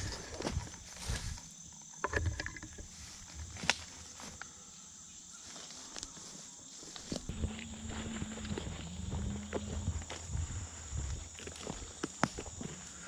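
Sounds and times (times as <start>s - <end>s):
footsteps on dry leaves: 5.4s - 13.0s.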